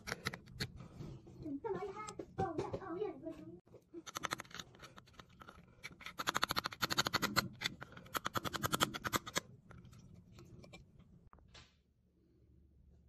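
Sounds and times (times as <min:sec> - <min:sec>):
hand tool scratching stone: 0:04.0 - 0:09.5.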